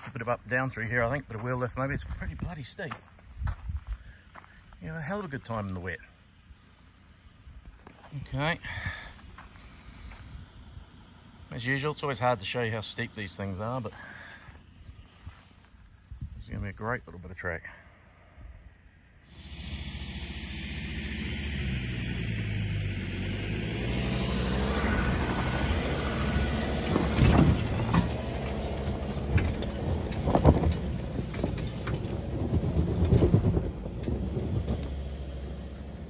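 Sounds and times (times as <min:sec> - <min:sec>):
truck engine climbing: 0:07.2 - 0:16.3, 0:19.3 - 0:36.0
suspension knocks and thumps: 0:25.2 - 0:36.0.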